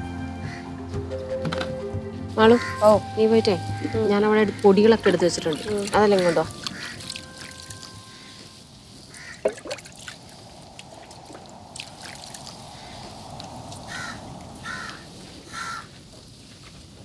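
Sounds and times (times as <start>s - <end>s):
crow cawing: 6.2s - 7.2s, 9.1s - 9.6s, 13.9s - 16.0s.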